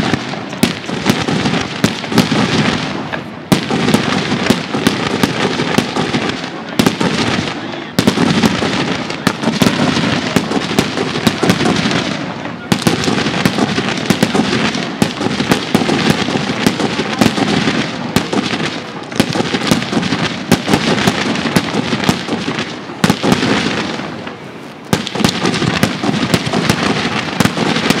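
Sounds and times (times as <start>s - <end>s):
fireworks bangs: 0.0s - 28.0s
fireworks crackling: 0.0s - 28.0s.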